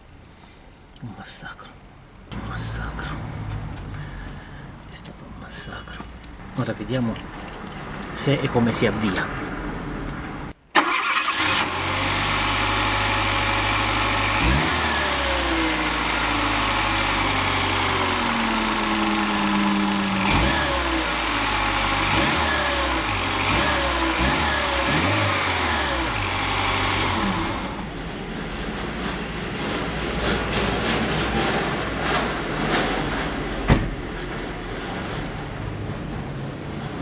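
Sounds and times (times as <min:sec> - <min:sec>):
petrol engine starting and idling: 0:02.3 - 0:05.1, 0:10.4 - 0:37.0.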